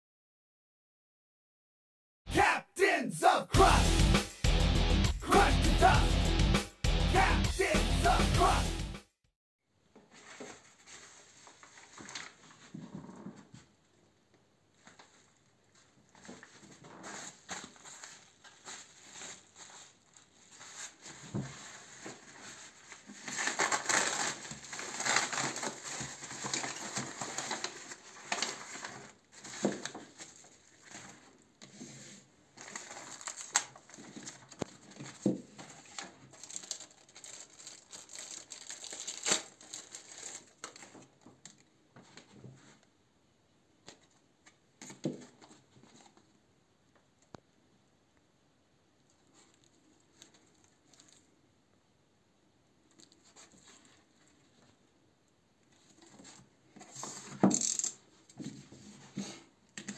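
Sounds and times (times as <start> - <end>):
padded mailer crinkling: 22.0 - 31.2, 32.6 - 41.1
plastic packaging clicks: 23.3 - 28.8, 32.7 - 35.0, 35.8 - 41.7.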